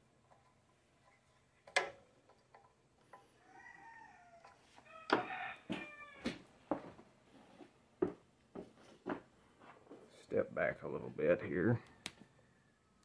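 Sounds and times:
chicken calling: 3.4s - 6.4s.

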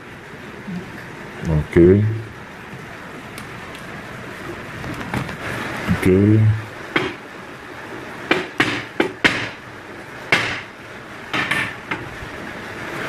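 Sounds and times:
hammer striking metal punch: 8.3s - 9.6s, 10.3s - 10.7s, 11.3s - 11.8s.

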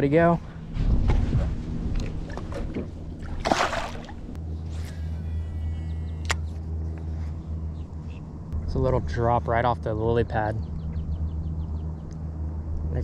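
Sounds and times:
water sloshing against boat: 0.7s - 4.9s
sharp click: 6.2s - 6.5s.

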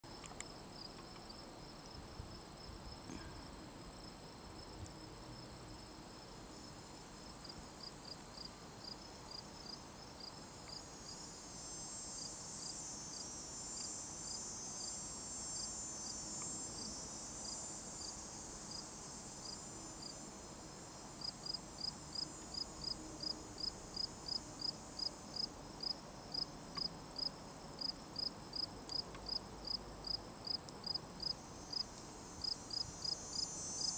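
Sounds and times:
insect high-pitched trill: 9.6s - 20.2s, 30.4s - 33.9s.

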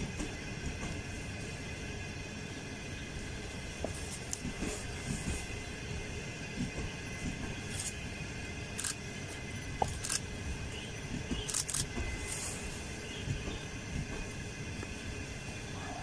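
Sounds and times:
train rumbling along track: 0.0s - 16.0s.

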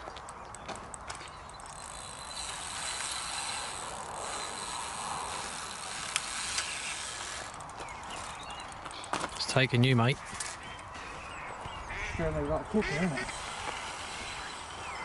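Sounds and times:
sharp reel clicks: 0.9s - 8.8s, 13.3s - 14.8s
fishing reel whirring: 1.4s - 8.8s, 13.2s - 15.0s.

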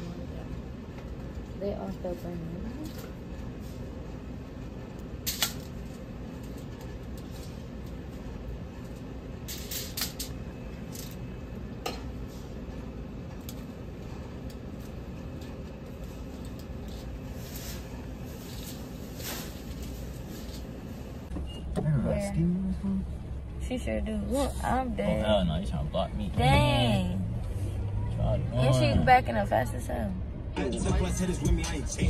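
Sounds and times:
ventilation fan hum: 0.0s - 32.0s.

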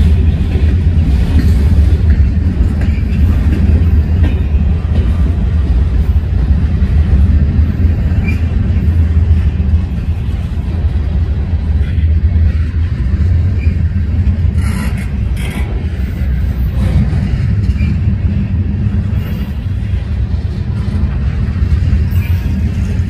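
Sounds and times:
sharp train clanks: 0.0s - 23.0s
train wheels rumbling on rails: 0.0s - 23.0s.

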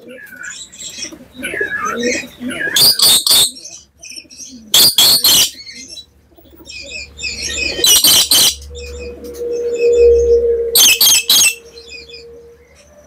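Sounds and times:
parrot screeching: 2.8s - 3.5s, 4.8s - 5.6s, 7.3s - 13.0s
high chattering: 6.4s - 13.0s.

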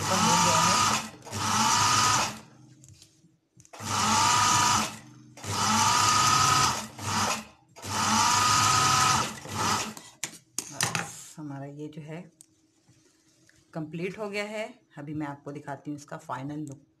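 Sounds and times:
sewing machine stitching: 0.0s - 2.6s, 3.7s - 10.1s.

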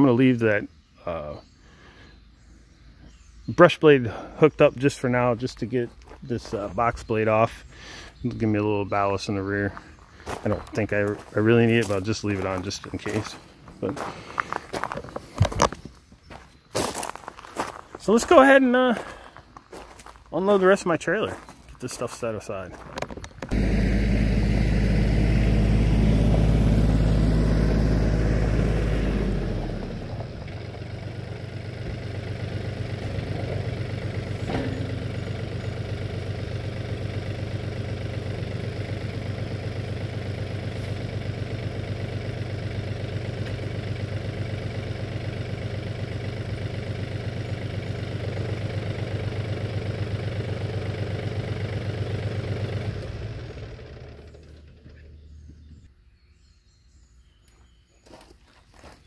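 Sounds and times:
tractor diesel engine idling: 3.6s - 15.5s, 23.4s - 55.9s.

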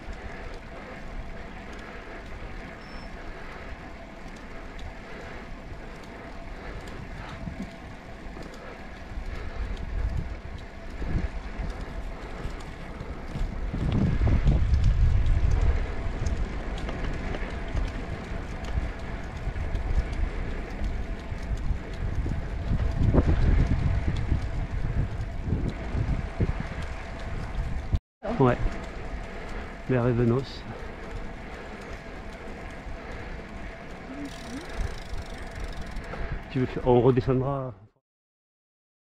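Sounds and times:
bicycle road noise: 0.0s - 37.8s
wind on microphone: 6.2s - 8.2s, 9.0s - 29.9s.

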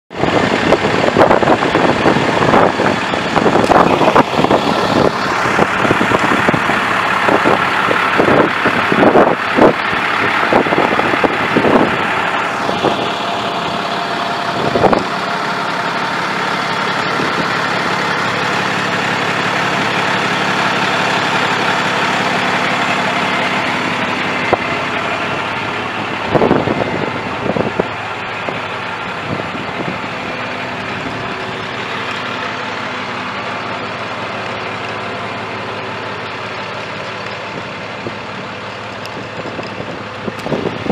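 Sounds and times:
diesel truck idling: 0.1s - 40.9s.

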